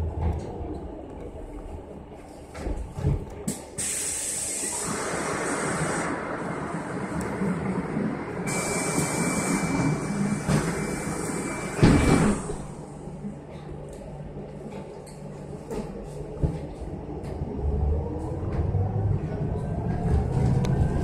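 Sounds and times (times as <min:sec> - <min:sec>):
bus cabin noise: 0:00.0 - 0:21.0
air hiss: 0:03.8 - 0:06.2.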